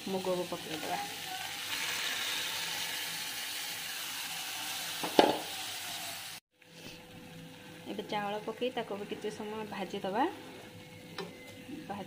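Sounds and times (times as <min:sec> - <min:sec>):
food sizzling in pan: 0:00.0 - 0:06.4.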